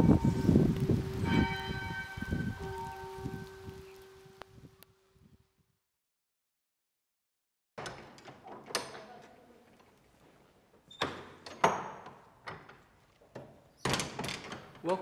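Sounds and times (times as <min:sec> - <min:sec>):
wooden door latch clunking: 0:07.8 - 0:09.1, 0:13.4 - 0:14.8.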